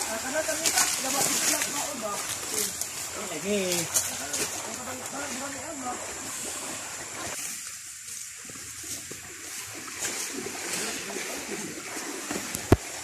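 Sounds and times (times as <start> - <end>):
stream water rushing and splashing: 0.0 - 13.0.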